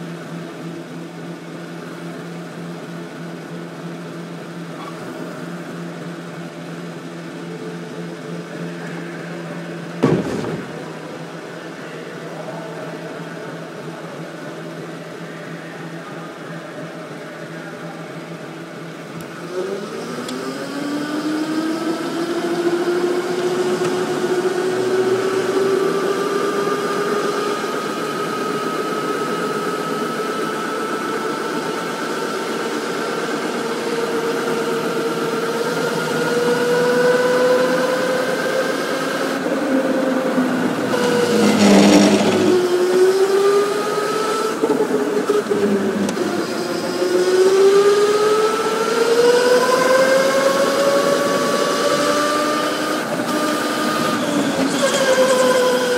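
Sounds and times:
sharp knock: 10.0s - 10.7s
electric motor whining: 19.4s - 55.9s.

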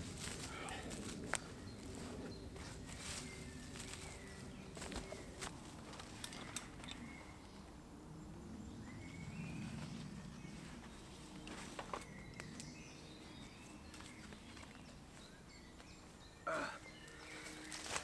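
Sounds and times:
footsteps on leaf litter: 0.0s - 6.2s, 17.2s - 18.0s
faint bird calls: 16.4s - 18.0s.

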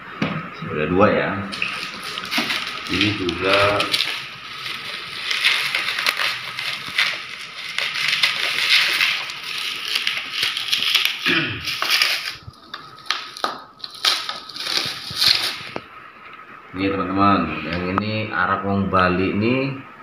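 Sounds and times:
bubble wrap crinkling: 1.5s - 15.9s.

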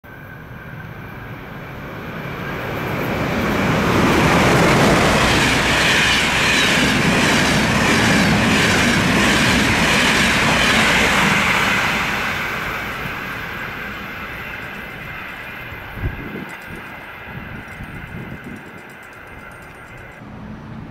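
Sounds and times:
passenger train passing: 0.0s - 20.9s
wheels clicking over rails: 12.8s - 20.2s.

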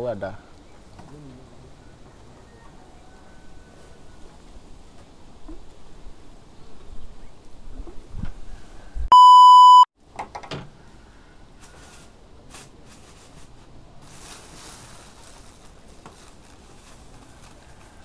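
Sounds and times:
loud electronic beep: 9.1s - 9.9s.

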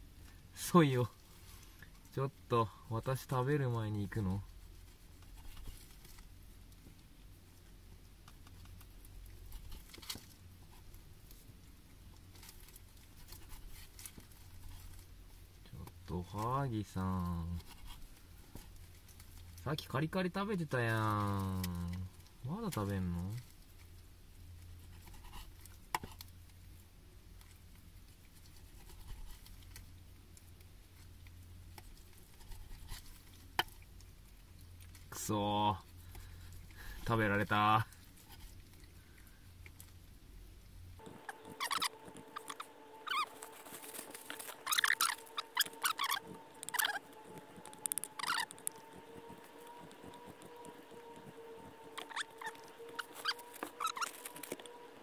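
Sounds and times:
low steady hum: 0.0s - 55.0s
cat nibbling fish: 35.9s - 55.0s
gloved hands rustling: 41.0s - 55.0s.

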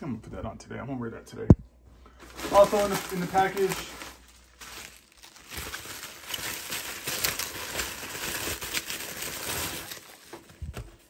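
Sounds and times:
bubble wrap crinkling: 2.2s - 11.0s.

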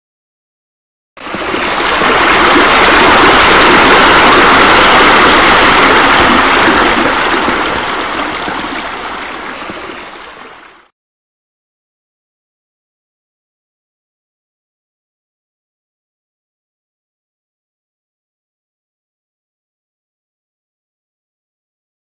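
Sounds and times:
running water rushing: 1.2s - 10.9s.

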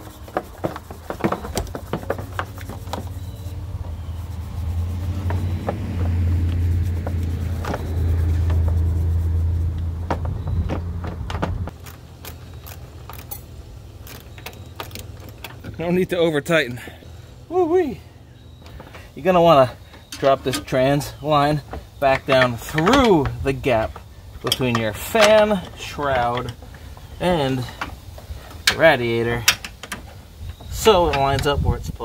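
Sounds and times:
steady low hum: 0.0s - 30.9s
metal fastener clinks: 11.8s - 15.6s.

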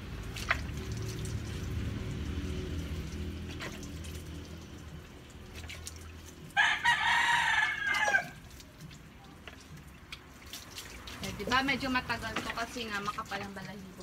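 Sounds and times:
rooster crowing: 6.6s - 8.4s.

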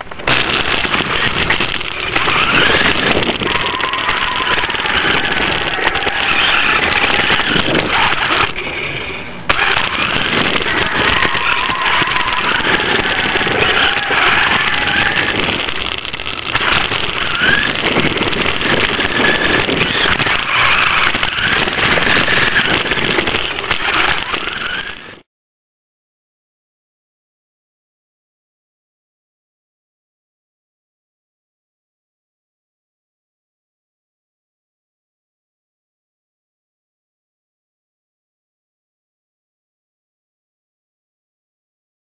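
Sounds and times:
tyres rushing on concrete: 0.0s - 25.2s
small electric motor whining: 0.3s - 25.2s.

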